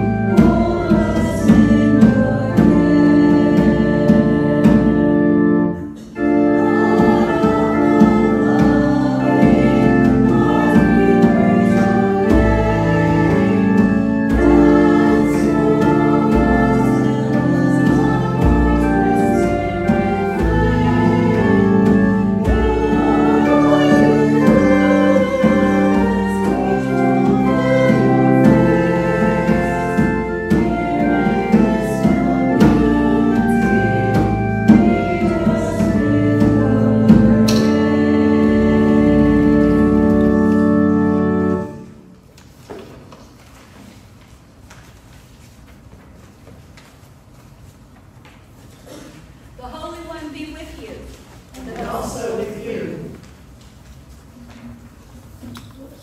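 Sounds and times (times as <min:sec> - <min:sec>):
hymn singing: 0:00.0 - 0:42.2, 0:48.9 - 0:53.6
keyboard held chords: 0:00.0 - 0:42.2.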